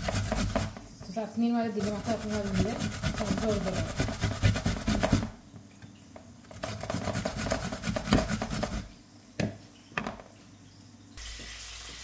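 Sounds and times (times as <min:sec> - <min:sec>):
radish grating on metal grater: 0:00.0 - 0:00.7, 0:01.8 - 0:05.2, 0:06.6 - 0:08.9.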